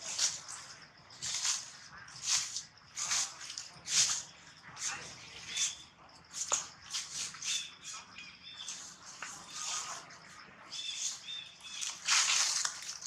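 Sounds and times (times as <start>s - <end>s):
dry leaves rustling: 0.0s - 5.1s, 10.8s - 13.0s.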